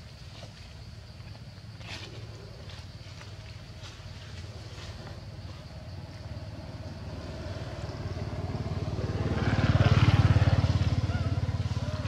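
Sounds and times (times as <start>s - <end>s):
vehicle engine passing by: 4.6s - 12.0s.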